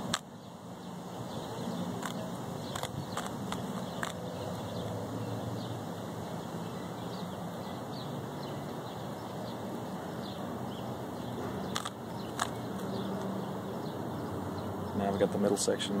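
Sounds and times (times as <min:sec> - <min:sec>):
plastic puzzle cube clicks: 0:02.0 - 0:04.2.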